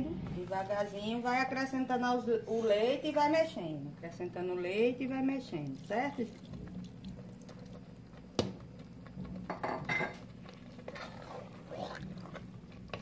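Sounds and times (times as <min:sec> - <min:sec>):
wooden spoon scraping metal pot: 0:10.8 - 0:13.0.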